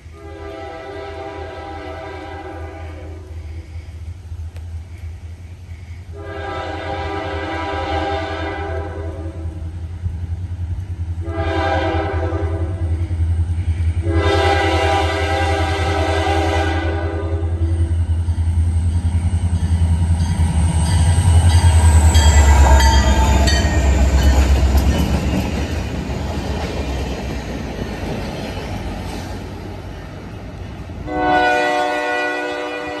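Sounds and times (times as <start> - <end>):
diesel locomotive engine rumbling: 0.0 - 33.0
train cars rolling by: 0.0 - 33.0
wheels clicking over rail joints: 21.4 - 30.9.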